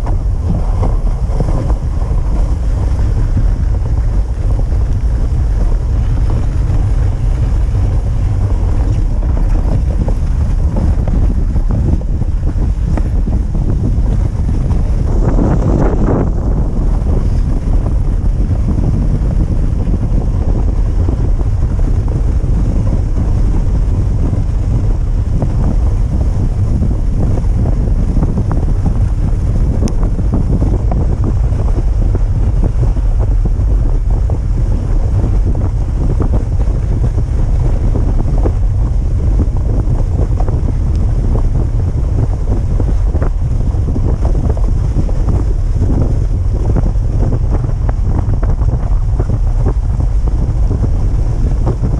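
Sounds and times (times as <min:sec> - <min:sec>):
sled running over packed snow: 0:00.0 - 0:51.9
wind buffeting microphone: 0:00.0 - 0:51.9.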